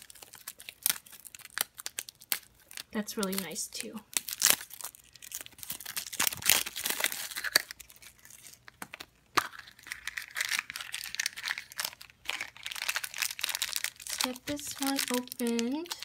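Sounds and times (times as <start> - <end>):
plastic wrapper crinkling: 0.0 - 16.0
plastic toy clicking and crackling: 8.7 - 16.0.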